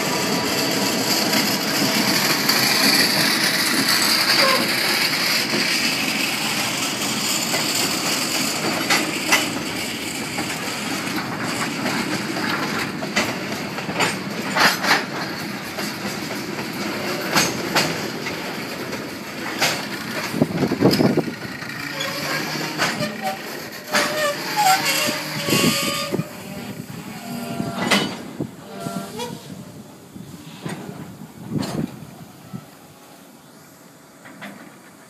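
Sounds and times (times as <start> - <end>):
diesel locomotive: 0.0 - 35.0
train wheels rumbling on rail: 0.0 - 35.0.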